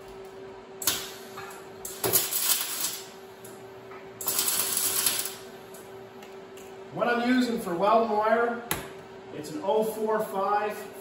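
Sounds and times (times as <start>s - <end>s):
welding arc crackling: 0.8s - 3.6s, 4.2s - 5.9s.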